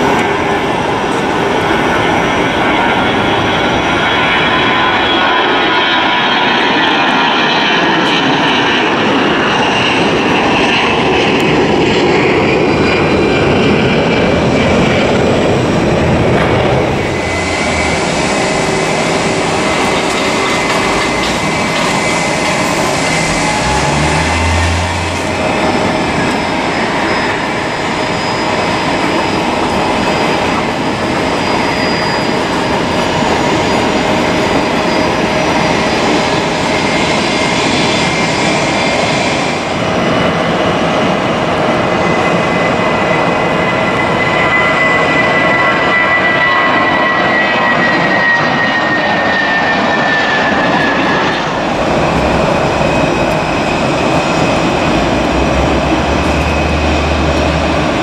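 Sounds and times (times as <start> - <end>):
jet airliner climbing at takeoff: 0.0 - 58.0
jet airliners taxiing whine: 0.0 - 58.0.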